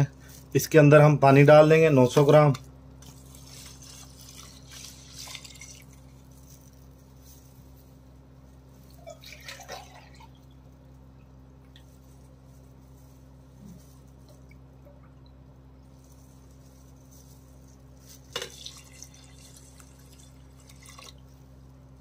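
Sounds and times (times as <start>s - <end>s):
low hum: 0.0s - 22.0s
water pouring into pot: 3.7s - 6.1s, 8.9s - 10.7s, 18.3s - 21.3s
water drips and splashes: 4.2s - 6.0s, 8.9s - 10.6s, 18.3s - 21.2s.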